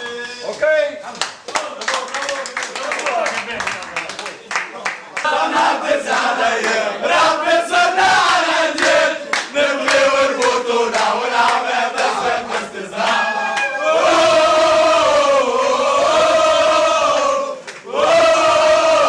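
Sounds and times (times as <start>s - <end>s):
group chanting and singing: 5.2s - 19.0s
group shouting: 13.0s - 19.0s.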